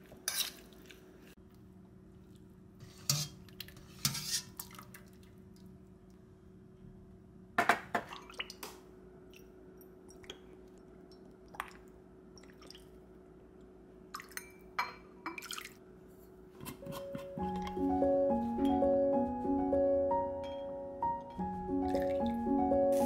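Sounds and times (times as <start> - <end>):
light vibraphone-like music: 17.3 - 23.0.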